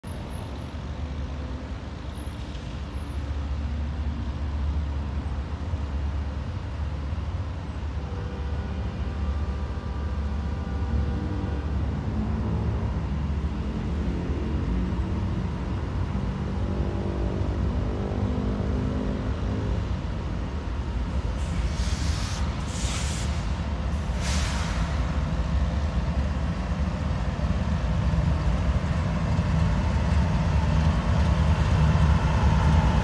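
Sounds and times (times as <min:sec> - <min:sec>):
locomotive engine rumble: 0:19.3 - 0:33.0.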